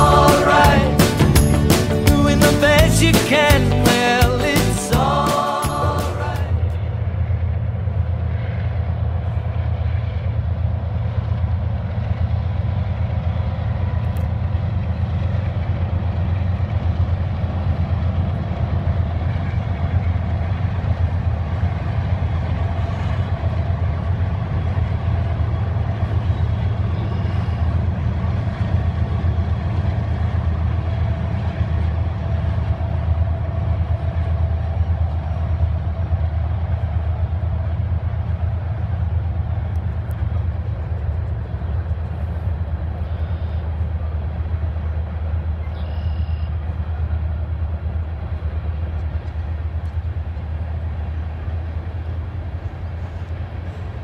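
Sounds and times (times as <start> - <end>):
distant freight train rumble: 0.0 - 54.0.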